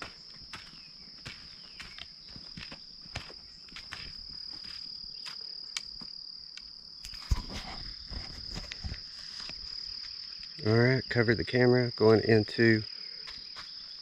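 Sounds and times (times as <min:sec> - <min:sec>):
footsteps and cane taps: 0:00.0 - 0:06.2
crickets trilling: 0:00.0 - 0:14.0.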